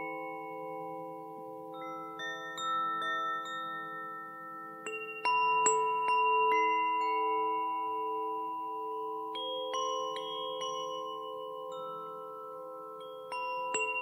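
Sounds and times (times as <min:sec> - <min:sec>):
wind chime ringing: 0:00.0 - 0:14.0.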